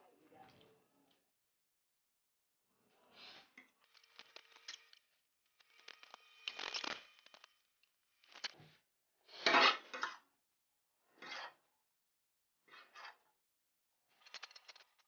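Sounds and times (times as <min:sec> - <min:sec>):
forks scraping on ceramic plate: 0:09.4 - 0:10.1.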